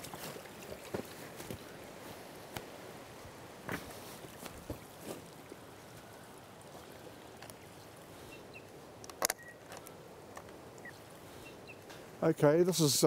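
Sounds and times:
stream rushing: 0:00.0 - 0:13.0
camera handling clicks: 0:09.0 - 0:10.5.

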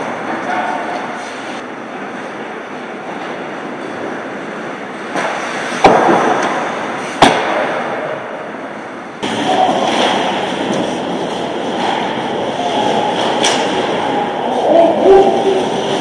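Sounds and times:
skates scraping on ice: 0:03.1 - 0:07.6
puck and stick cracks: 0:05.1 - 0:08.0.

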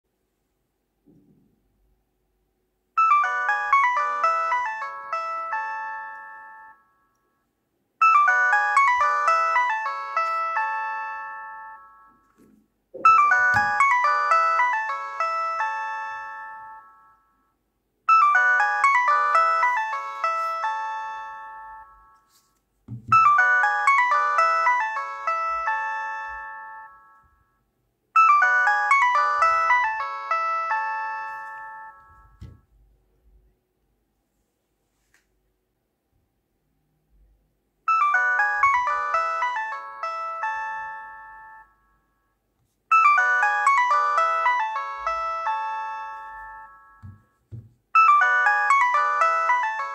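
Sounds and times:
mobile phone ringtone: 0:03.0 - 0:07.1, 0:08.0 - 0:12.4, 0:13.0 - 0:27.6, 0:28.2 - 0:32.6, 0:37.9 - 0:42.2, 0:42.9 - 0:49.9
soft thump: 0:47.0 - 0:47.8.

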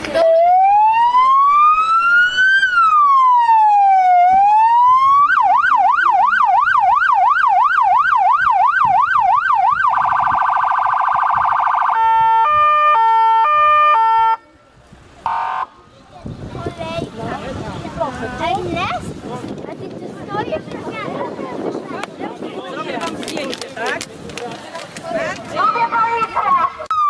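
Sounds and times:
police siren wailing and yelping: 0:00.2 - 0:14.4.

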